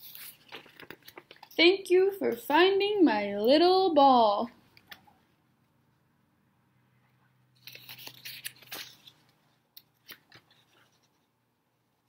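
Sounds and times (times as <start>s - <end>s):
book pages rustling: 0.0s - 1.5s, 7.6s - 11.3s.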